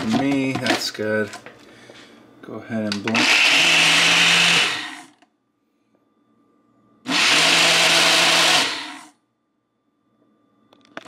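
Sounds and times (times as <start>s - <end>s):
blender motor blending ice: 3.1s - 5.2s, 7.1s - 9.2s.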